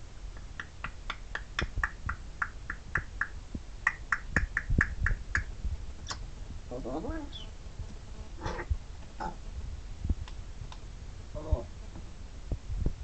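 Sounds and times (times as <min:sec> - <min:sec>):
parrot clicking: 0:00.4 - 0:05.5.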